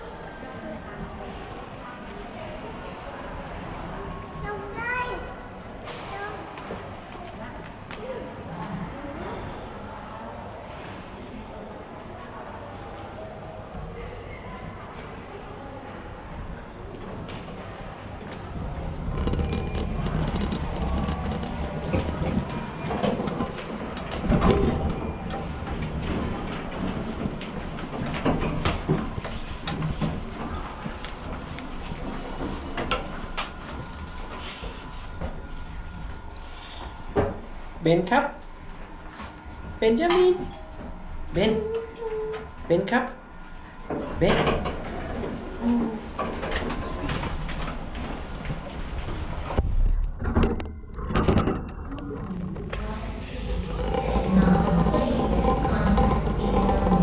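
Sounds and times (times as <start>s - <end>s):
elevator rumbling: 17.2s - 37.8s, 43.2s - 57.0s.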